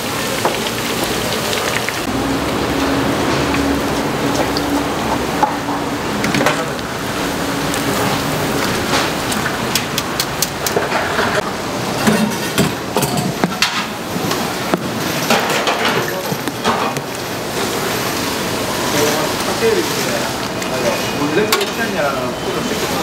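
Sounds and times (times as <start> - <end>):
food deep-frying in oil: 0.0 - 23.0.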